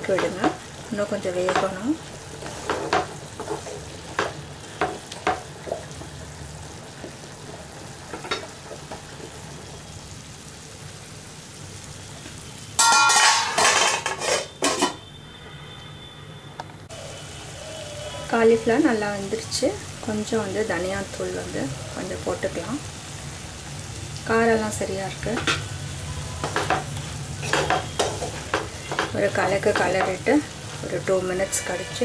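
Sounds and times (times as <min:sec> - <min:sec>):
frying sizzle: 0:00.0 - 0:16.1, 0:16.7 - 0:32.0
wooden spatula scraping a pan: 0:02.4 - 0:06.2, 0:13.6 - 0:15.0
metal lid clattering: 0:12.8 - 0:15.0.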